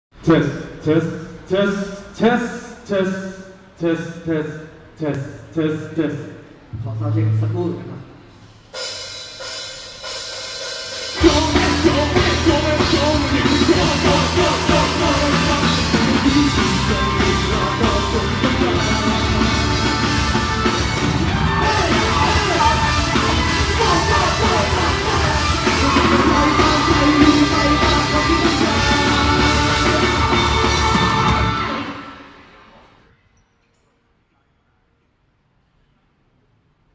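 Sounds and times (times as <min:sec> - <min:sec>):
drums: 0:06.6 - 0:32.9
live rock band: 0:10.8 - 0:32.4
person singing: 0:11.2 - 0:32.1
electric guitars: 0:11.2 - 0:32.7.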